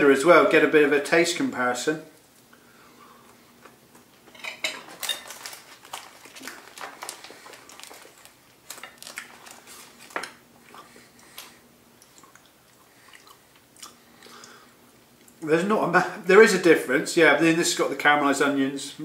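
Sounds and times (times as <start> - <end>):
plastic packaging crinkling: 4.3 - 10.4.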